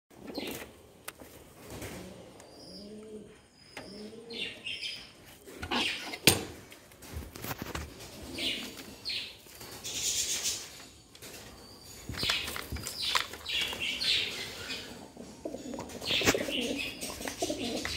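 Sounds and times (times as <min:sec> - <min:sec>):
pigeons cooing: 0:00.2 - 0:00.7, 0:01.6 - 0:06.3, 0:08.0 - 0:10.7, 0:11.4 - 0:17.9
wings flapping and rustling: 0:06.7 - 0:14.7, 0:15.6 - 0:17.9.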